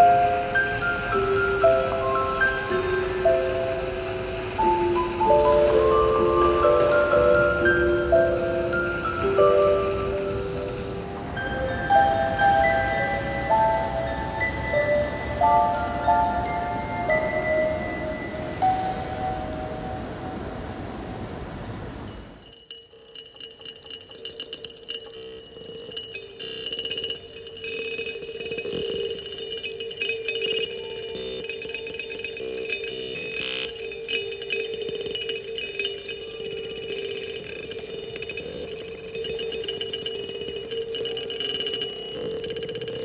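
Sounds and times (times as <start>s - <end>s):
kalimba plucked notes: 0.0s - 19.8s
fluttering high tone: 0.0s - 20.7s
low ringing drone: 0.0s - 43.0s.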